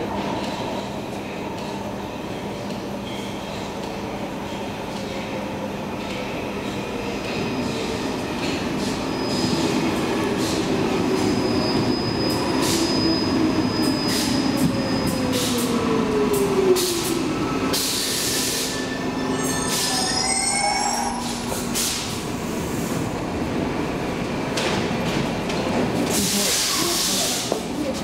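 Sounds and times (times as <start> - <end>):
train braking to a stop: 8.6 - 23.0.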